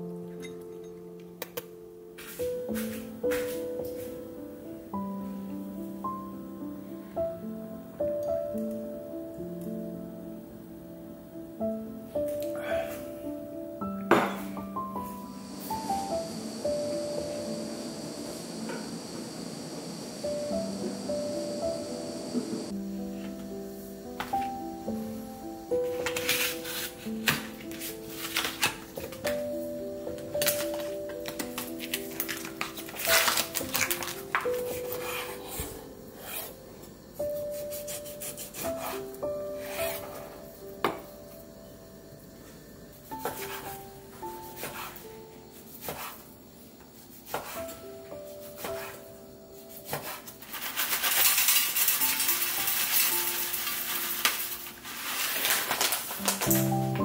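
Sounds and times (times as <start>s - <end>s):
background music with held notes: 0.0s - 18.9s, 20.2s - 50.5s, 51.8s - 57.0s
plastic bag crinkling: 30.1s - 35.0s, 50.5s - 57.0s
dry flakes pattering onto metal: 30.2s - 35.1s, 50.2s - 56.8s
knife tapping and scraping board: 47.3s - 47.6s.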